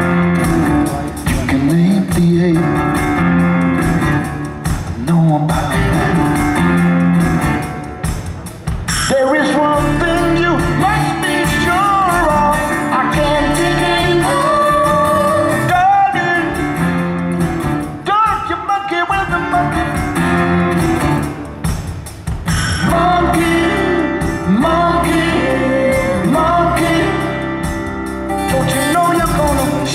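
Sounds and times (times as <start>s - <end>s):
live band playing: 0.0s - 29.9s
wordless singing: 9.1s - 16.7s, 22.8s - 27.8s.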